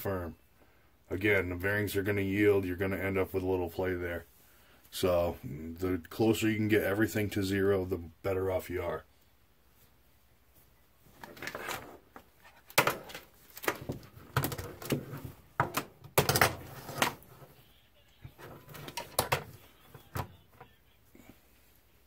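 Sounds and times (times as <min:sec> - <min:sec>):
hard plastic knocks and clatter: 0:12.7 - 0:17.3, 0:18.4 - 0:20.3.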